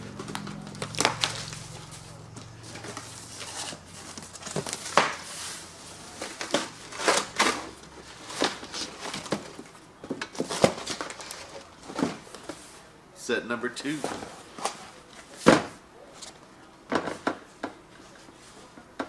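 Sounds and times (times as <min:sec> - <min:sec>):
cardboard rubbing and rustling: 0:00.2 - 0:12.7.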